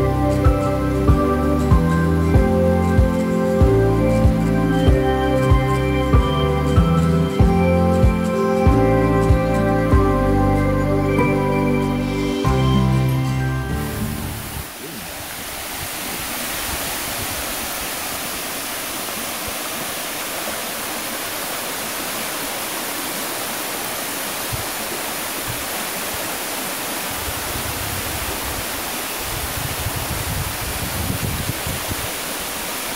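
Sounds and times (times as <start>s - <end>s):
waterfall rushing onto rocks: 0.0s - 10.4s, 11.1s - 32.9s.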